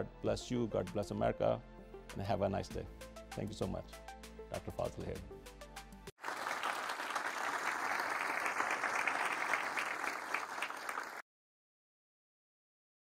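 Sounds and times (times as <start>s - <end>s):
audience applauding: 6.2s - 11.2s.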